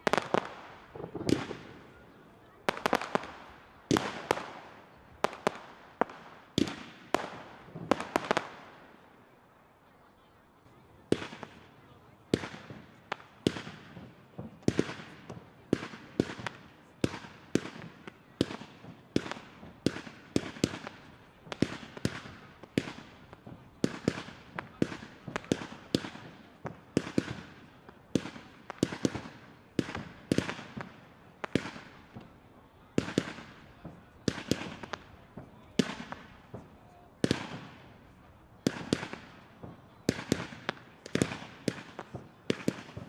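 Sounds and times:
fireworks bangs with echo: 0.0 - 9.0, 11.0 - 43.0.

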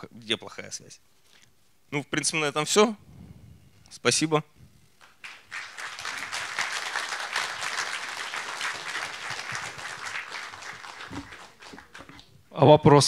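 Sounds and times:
audience applauding: 5.0 - 12.4.

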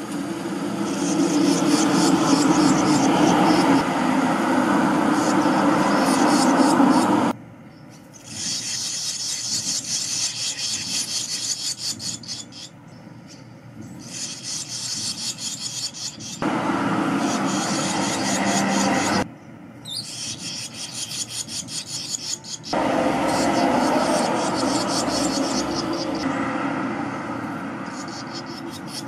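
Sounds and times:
loud low noise: 0.0 - 7.4, 16.4 - 19.3, 22.7 - 29.0
nestlings begging calls: 0.0 - 29.0.

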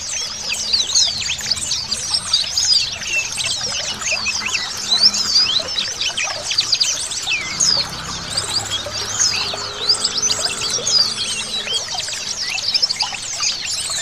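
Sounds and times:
birds twittering: 0.0 - 14.0
running water trickling: 0.0 - 14.0.

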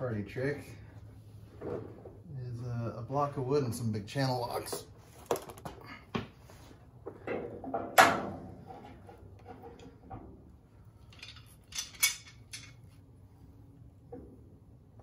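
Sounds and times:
hand tools clinking on metal: 11.0 - 12.9.

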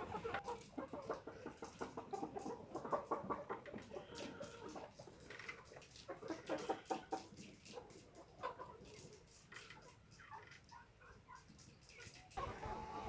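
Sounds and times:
hens clucking: 0.0 - 13.0.

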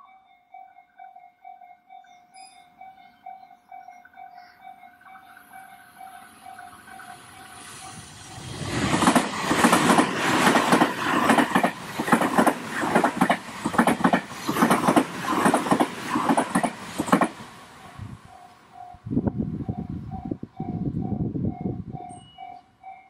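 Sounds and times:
faint level-crossing bell: 0.0 - 8.2, 17.8 - 23.0
train wheels clacking: 5.0 - 19.0.

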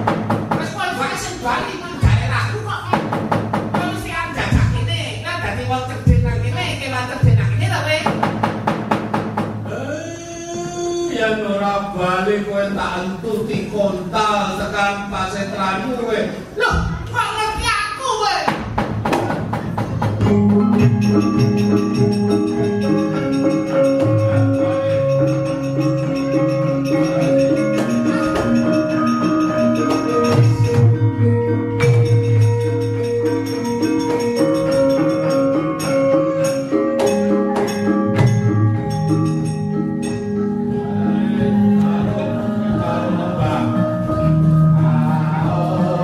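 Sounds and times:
sharp knocks: 0.0 - 0.8, 2.9 - 4.8, 8.0 - 9.6, 18.5 - 20.6
gamelan music: 19.4 - 46.0.

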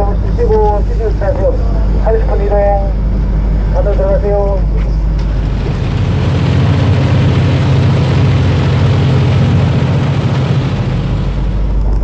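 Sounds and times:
boat engine drone: 5.0 - 12.0
water rushing from wake: 5.2 - 12.0.

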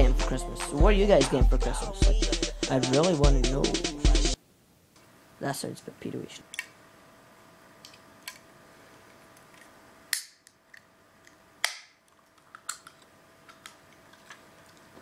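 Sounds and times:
can opening cracks: 10.1 - 14.8.

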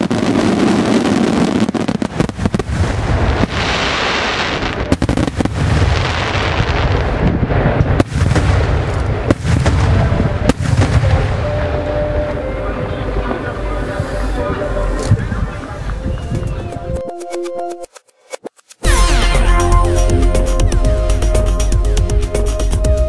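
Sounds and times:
fireworks bursting: 0.0 - 16.6.

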